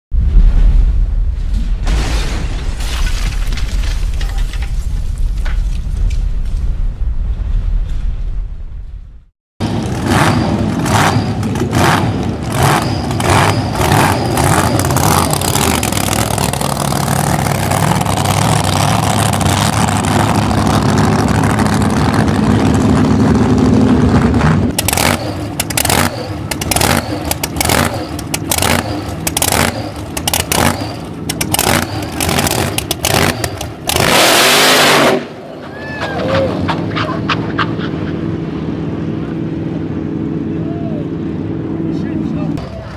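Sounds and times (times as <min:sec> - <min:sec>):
engine throttle blips: 0:09.6 - 0:35.4
supercharged drag car engine: 0:09.6 - 0:35.6.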